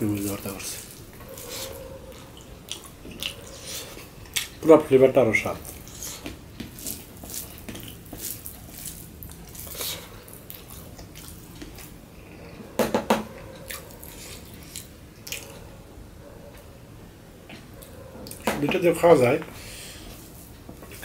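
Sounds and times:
chewing: 0:00.2 - 0:04.7, 0:05.6 - 0:12.7, 0:13.3 - 0:15.8
fingers squishing food: 0:05.5 - 0:12.0.

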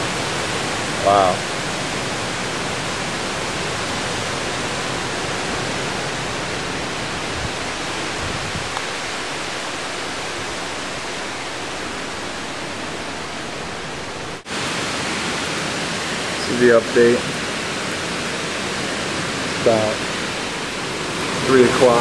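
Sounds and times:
wind buffets on microphone: 0:00.0 - 0:16.1
wind rushing through trees: 0:00.0 - 0:22.0.

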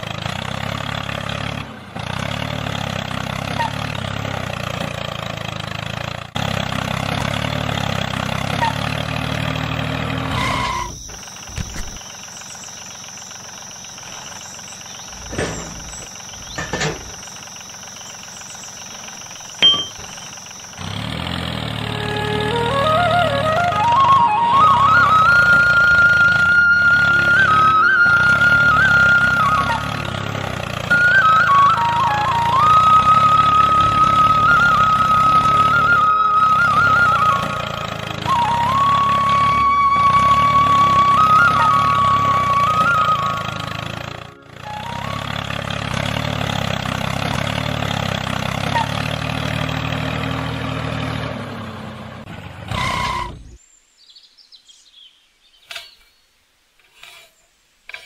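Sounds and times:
toy tractor motor running: 0:00.0 - 0:22.8
engine chugging: 0:00.0 - 0:53.6.

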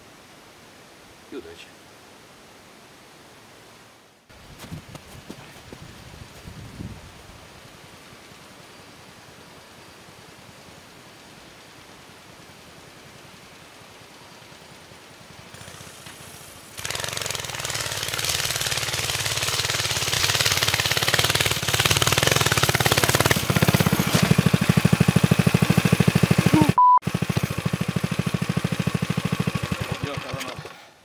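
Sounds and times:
motorcycle engine pulsing: 0:16.8 - 0:30.7.

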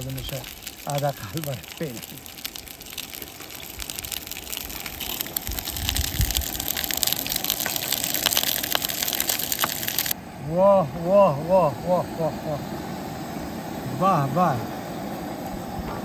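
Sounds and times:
fish sizzling in frying pan: 0:00.0 - 0:10.2
oil spattering crackles: 0:00.0 - 0:10.2.

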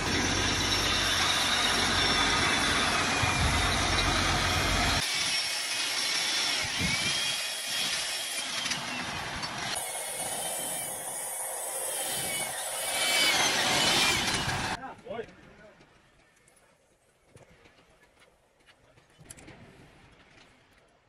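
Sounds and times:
electric drill boring through steel: 0:00.0 - 0:14.8
power tool on steel: 0:00.0 - 0:14.8.

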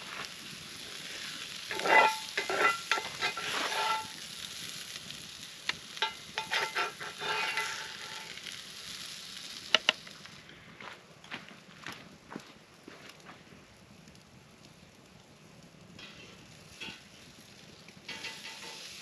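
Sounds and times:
utensil scraping in skillet: 0:00.0 - 0:10.4, 0:16.0 - 0:17.2, 0:18.0 - 0:19.0.

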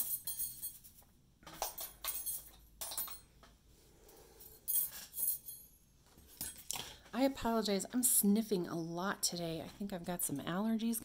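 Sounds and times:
light metal clinks and taps: 0:00.0 - 0:03.6.

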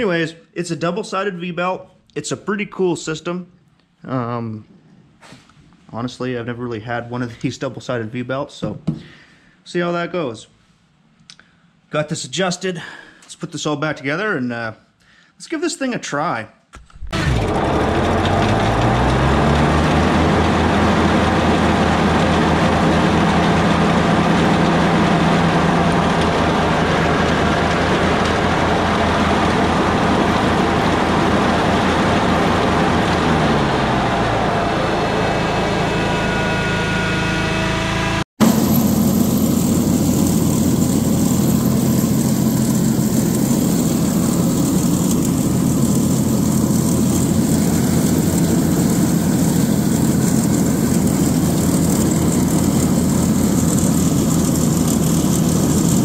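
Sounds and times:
mower cutting grass: 0:16.9 - 0:56.0
mower engine running: 0:16.9 - 0:56.0.

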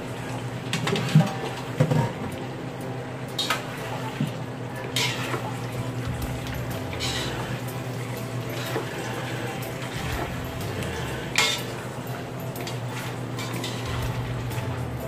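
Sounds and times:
steady low hum: 0:00.0 - 0:15.0
utensils scraping a wok: 0:05.0 - 0:05.6, 0:06.8 - 0:07.7, 0:08.5 - 0:11.9, 0:13.0 - 0:15.0.

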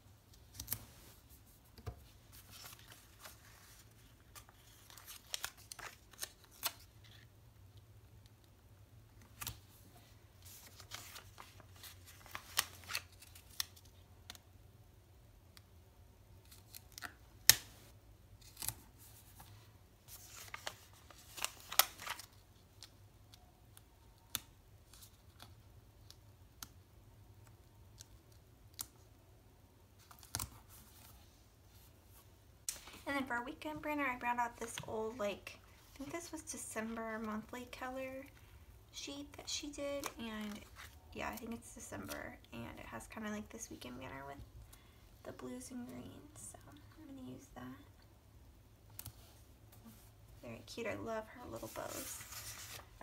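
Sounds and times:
paper rustling: 0:00.3 - 0:07.3, 0:09.2 - 0:13.9, 0:18.4 - 0:22.9, 0:51.4 - 0:53.0.

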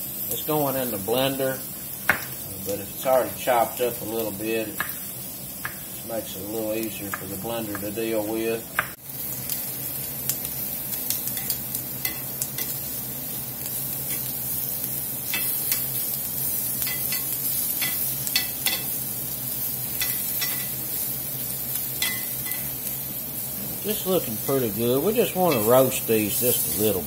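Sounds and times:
vegetables sizzling on grill pan: 0:00.0 - 0:27.0
metal tongs clicking on pan: 0:11.2 - 0:12.8, 0:15.3 - 0:15.9, 0:16.8 - 0:19.0, 0:20.0 - 0:20.8, 0:22.0 - 0:22.7, 0:25.5 - 0:25.8.

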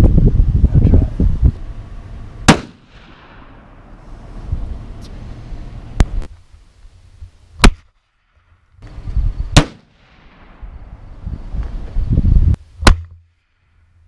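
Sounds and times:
rifle shots: 0:02.4 - 0:03.8, 0:09.5 - 0:10.8.

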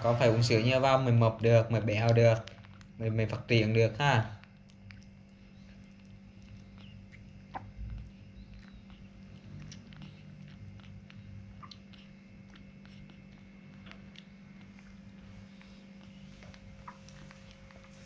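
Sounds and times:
steady low hum: 0:00.0 - 0:18.0
suckling clicks and smacks: 0:02.0 - 0:03.4, 0:04.4 - 0:15.2.

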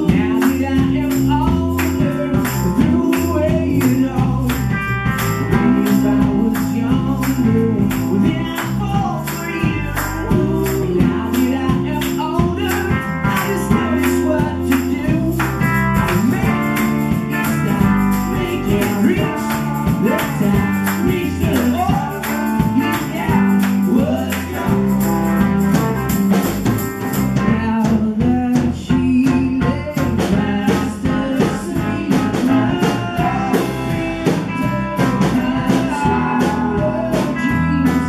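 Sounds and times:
acoustic and electric guitars: 0:00.0 - 0:38.0
drum kit: 0:00.0 - 0:38.0
shaken hand percussion: 0:00.0 - 0:38.0.

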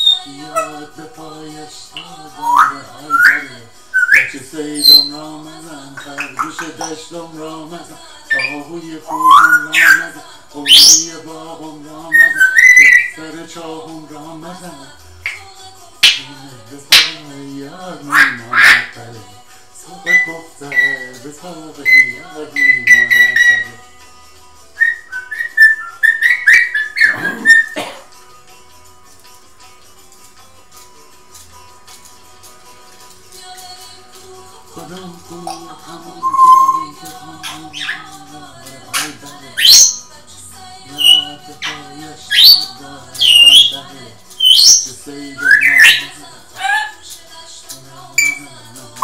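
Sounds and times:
parrot whistling: 0:00.0 - 0:00.9, 0:02.0 - 0:05.2, 0:08.3 - 0:11.1, 0:12.1 - 0:13.2, 0:18.1 - 0:19.0, 0:20.0 - 0:21.2, 0:21.8 - 0:23.9, 0:24.8 - 0:27.8, 0:36.2 - 0:38.2, 0:38.9 - 0:40.1, 0:41.0 - 0:47.0, 0:48.2 - 0:48.5
quiet music: 0:00.0 - 0:49.0
recorded singing with instruments: 0:00.0 - 0:49.0.

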